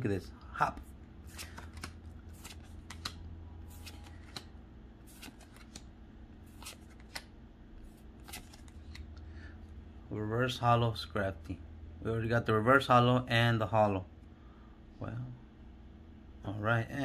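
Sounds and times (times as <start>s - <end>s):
cards flicking and slapping: 1.2s - 7.3s, 7.9s - 9.2s.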